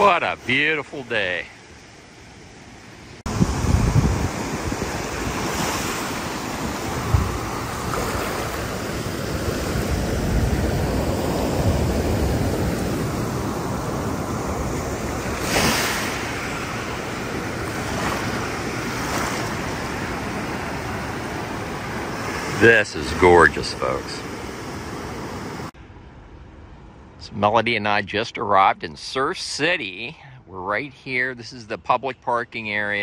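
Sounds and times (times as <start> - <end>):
surf washing up the beach: 0.0 - 25.7
wind buffeting microphone: 3.2 - 22.6.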